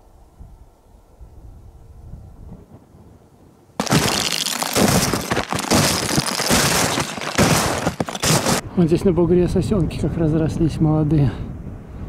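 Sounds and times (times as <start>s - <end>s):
footsteps crunching icy snow: 3.8s - 8.6s.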